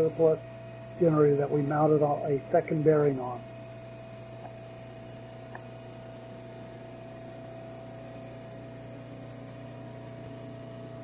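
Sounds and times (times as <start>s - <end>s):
turbine and generator humming: 0.0s - 11.0s.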